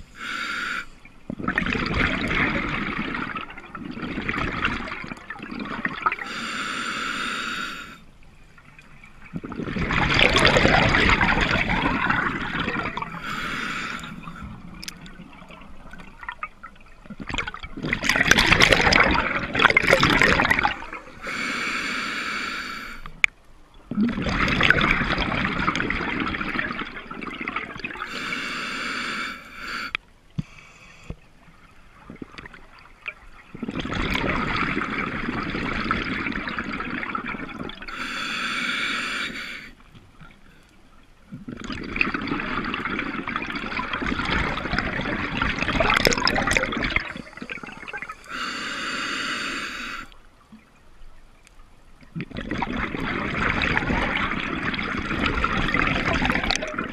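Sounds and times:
hissing inhale through regulator: 0.0s - 1.1s, 6.2s - 8.1s, 13.1s - 14.6s, 20.9s - 23.2s, 28.0s - 31.2s, 37.9s - 39.8s, 46.5s - 50.2s
bubbling exhale: 9.4s - 14.9s, 41.5s - 50.2s.

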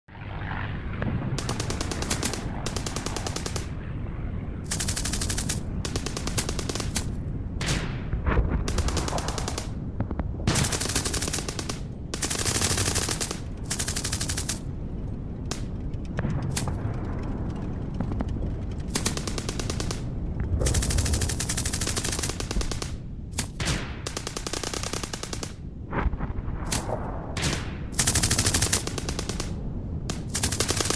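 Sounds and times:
distant battle rumble: 0.1s - 30.9s
machine-gun fire bursts: 1.4s - 3.7s, 4.7s - 7.1s, 8.7s - 9.8s, 10.5s - 14.6s, 18.9s - 25.6s, 27.5s - 30.9s.

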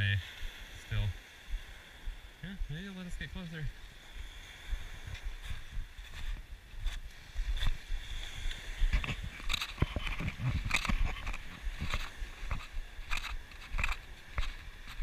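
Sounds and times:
wind rumble on microphone: 3.7s - 15.0s
footsteps crunching on pebbles: 5.1s - 15.0s.

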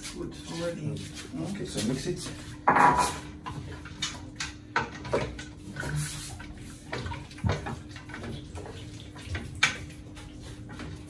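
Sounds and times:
liquid sloshing in a pot: 0.0s - 11.0s
spoon knocking and scraping a pot: 2.6s - 5.4s.

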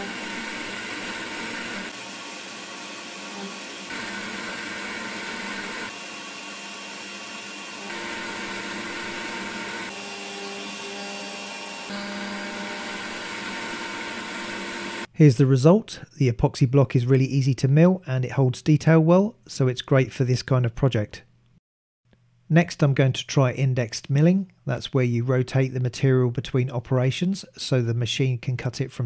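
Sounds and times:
cnc mill spindle whining: 0.0s - 15.1s
vacuum extraction running: 0.0s - 15.1s.

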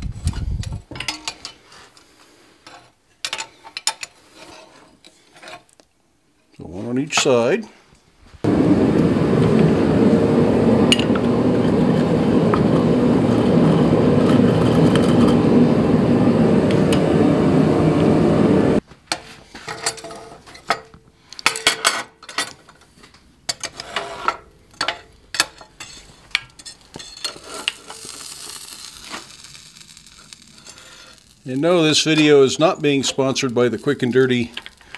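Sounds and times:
forge rushing noise: 8.5s - 18.8s
metal clinks and clanks on steel table: 24.7s - 27.7s.

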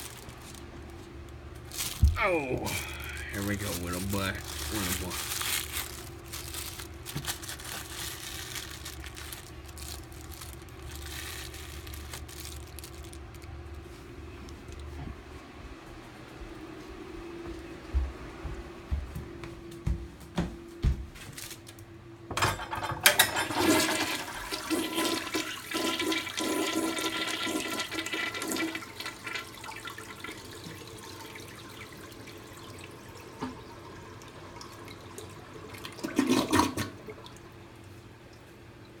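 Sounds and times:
toilet water rushing and swirling: 23.1s - 37.7s.

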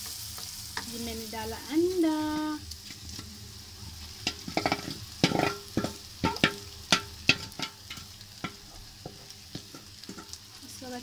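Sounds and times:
oil sizzling: 0.0s - 11.0s
wooden spatula knocking steel pan: 4.2s - 10.4s.

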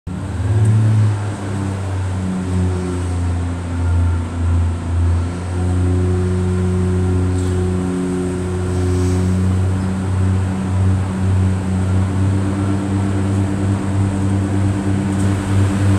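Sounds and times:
diesel engine low hum: 0.0s - 15.9s.

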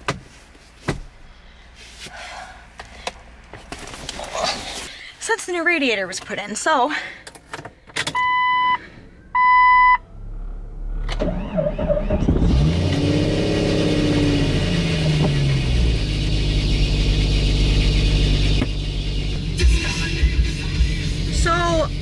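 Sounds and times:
car engine starting and revving: 9.2s - 22.0s.

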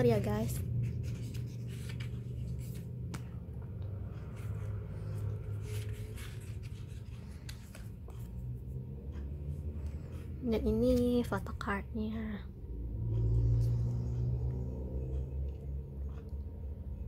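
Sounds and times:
steady low hum: 0.0s - 17.0s
paper rustling: 0.1s - 3.4s, 4.3s - 8.4s.

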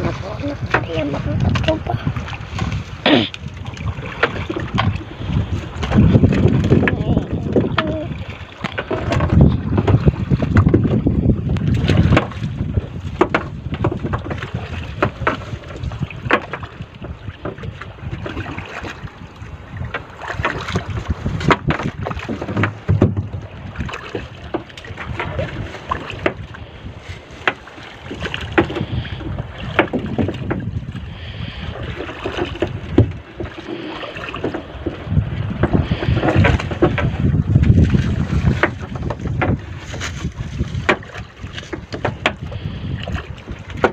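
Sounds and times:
water sloshing around boat: 0.0s - 43.9s
wind rumbling on microphone: 0.0s - 43.9s
wet fishing net knocks and rustles: 8.6s - 11.0s, 11.6s - 16.8s, 19.8s - 26.4s, 27.0s - 28.9s, 35.6s - 42.5s, 43.7s - 43.9s.

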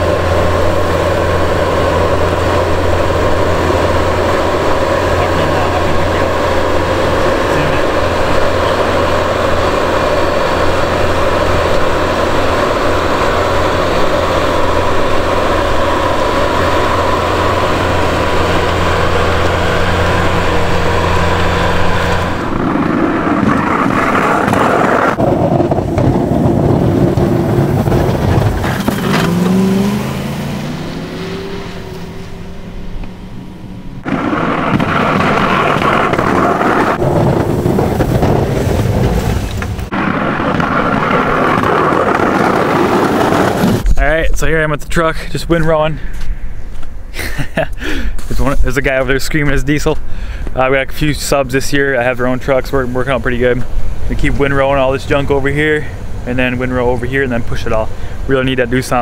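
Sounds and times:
skid steer diesel engine under load: 0.0s - 44.0s
pickup truck pushing snow: 0.0s - 44.1s, 47.2s - 59.0s.

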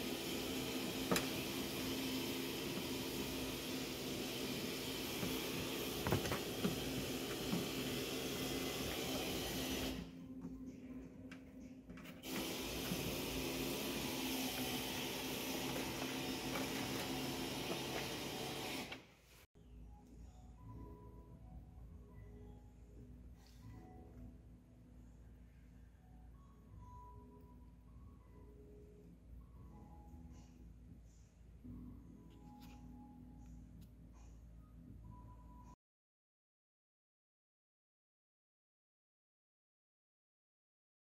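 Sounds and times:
machine hum and hiss: 0.0s - 10.3s, 12.0s - 19.4s.

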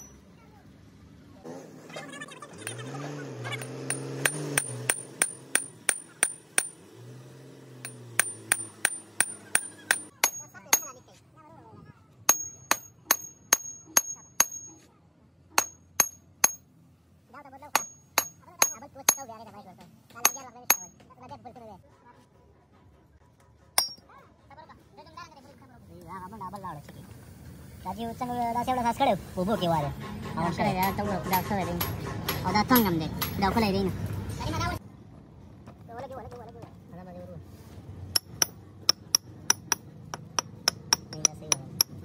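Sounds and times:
hammer striking steel: 3.6s - 6.9s, 7.8s - 11.0s, 12.3s - 14.8s, 15.6s - 16.7s, 17.8s - 19.4s, 20.2s - 21.0s, 23.8s - 24.0s, 38.2s - 42.0s.

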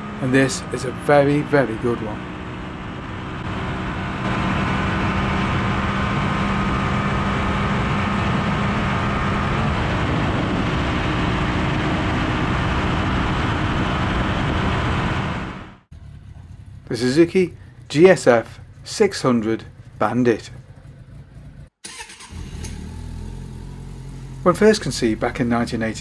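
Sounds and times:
motorcycle engine at high speed: 0.0s - 26.0s
heavy wind noise: 7.3s - 15.8s.

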